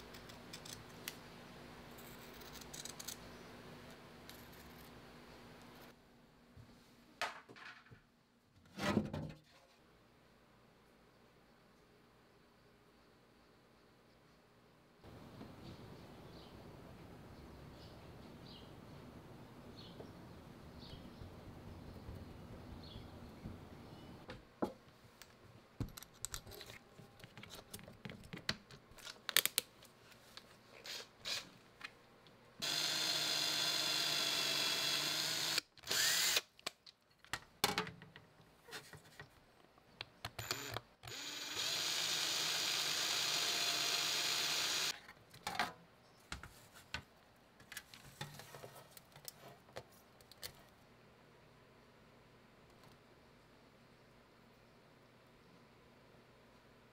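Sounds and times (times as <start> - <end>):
electric drill boring through plastic: 32.6 - 36.5, 40.4 - 44.9.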